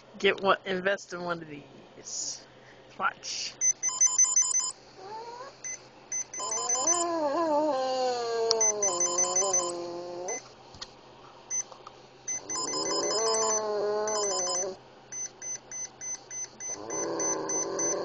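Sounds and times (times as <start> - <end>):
electronic ringtone beeps: 3.6 - 4.7, 6.2 - 7.1, 8.6 - 9.8, 12.3 - 18.0
dog howling: 6.4 - 10.4, 12.6 - 14.8, 16.7 - 18.0.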